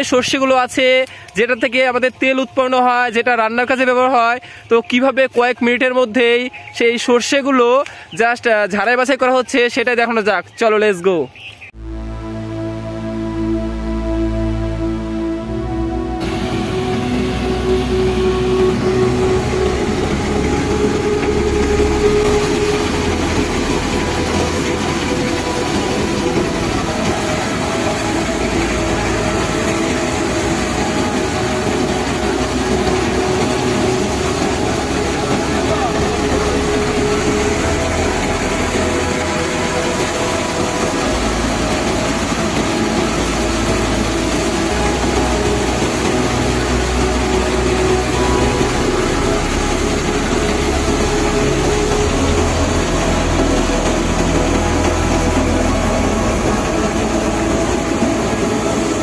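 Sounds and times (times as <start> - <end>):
threshing machine rumbling: 11.8 - 59.0
tractor engine: 14.6 - 59.0.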